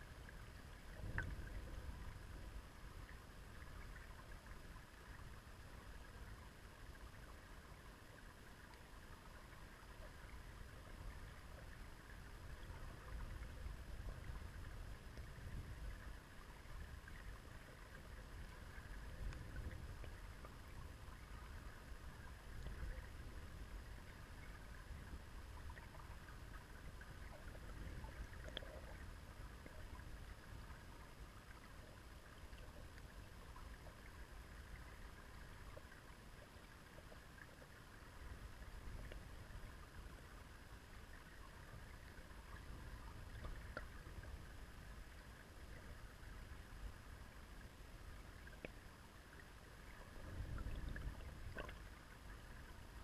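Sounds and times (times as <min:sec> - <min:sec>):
underwater river flow rumble: 0:00.0 - 0:53.0
small ticks: 0:08.1 - 0:08.9, 0:25.5 - 0:30.8, 0:38.9 - 0:39.3, 0:43.2 - 0:44.4, 0:48.4 - 0:49.4, 0:50.6 - 0:51.9.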